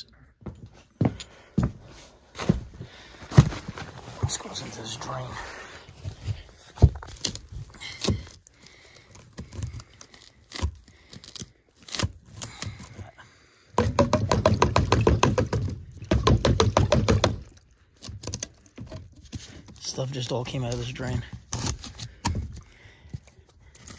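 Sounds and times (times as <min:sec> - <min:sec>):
knocks and scrapes on plastic pipe: 0:13.8 - 0:19.9.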